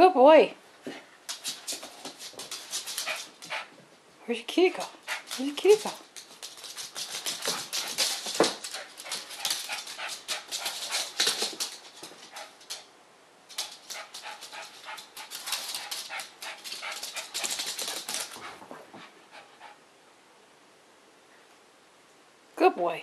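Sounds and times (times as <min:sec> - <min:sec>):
dog claws clicking on hardwood floor: 0:01.3 - 0:03.6, 0:05.1 - 0:12.9, 0:13.5 - 0:18.6.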